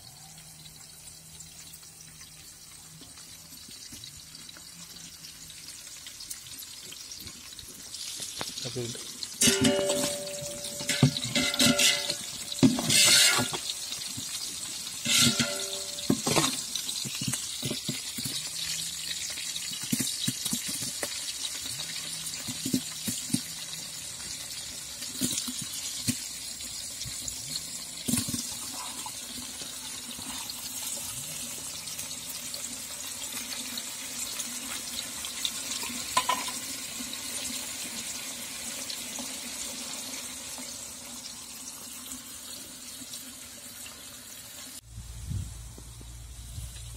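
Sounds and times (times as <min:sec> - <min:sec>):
food sizzling in hot oil: 0:00.0 - 0:46.9
metal ladle scraping a pot: 0:09.4 - 0:14.1, 0:15.0 - 0:17.2.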